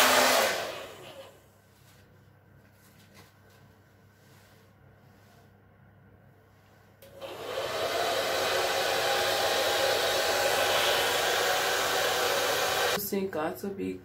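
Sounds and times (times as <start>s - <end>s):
hair dryer blowing: 0.0s - 1.4s, 7.0s - 13.0s.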